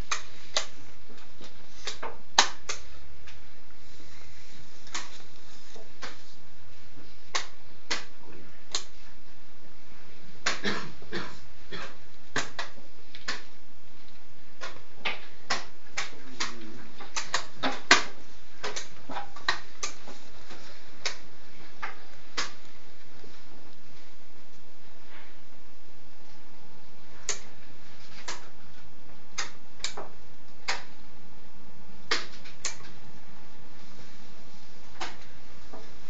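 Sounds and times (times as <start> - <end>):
chess pieces clacking on boards: 14.6 - 22.6.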